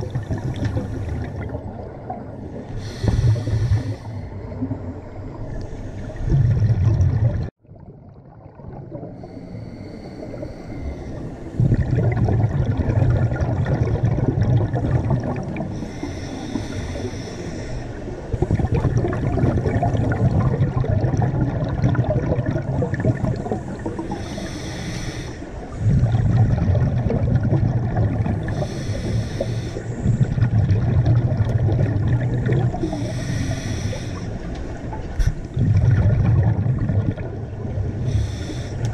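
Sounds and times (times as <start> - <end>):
exhaled air bubbling underwater: 0.0 - 38.9
diver inhaling through regulator: 2.7 - 4.5, 9.1 - 11.8, 14.9 - 18.7, 22.7 - 26.2, 28.3 - 30.4, 32.7 - 34.5, 38.0 - 38.9.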